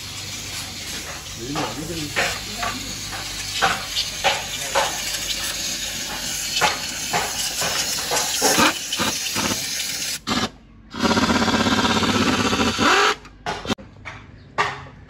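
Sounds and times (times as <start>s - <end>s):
compressed air blow gun hissing: 0.0s - 10.2s.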